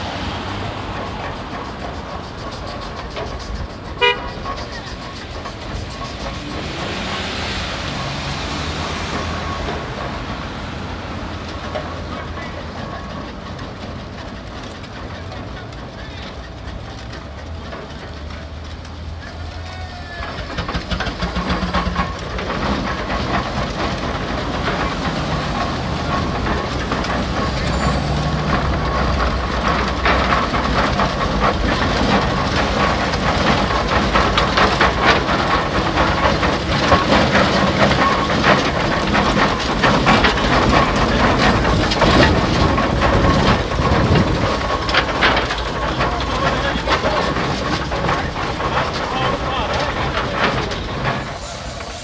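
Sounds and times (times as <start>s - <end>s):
steam engine clattering and hissing: 0.0s - 52.0s.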